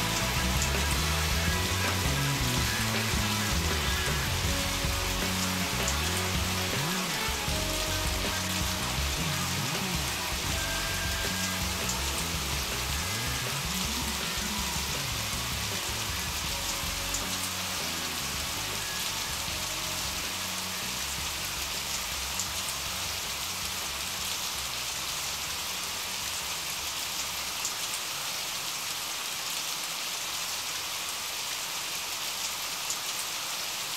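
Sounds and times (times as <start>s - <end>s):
song low notes: 0.0s - 24.4s
rain drop ticks: 0.0s - 28.1s
steady rain hiss: 0.0s - 33.9s.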